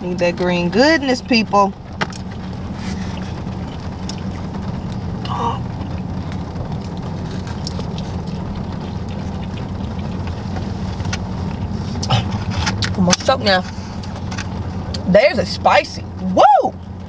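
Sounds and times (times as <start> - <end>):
car cabin hum: 0.0 - 17.0
faint chewing: 2.1 - 13.0.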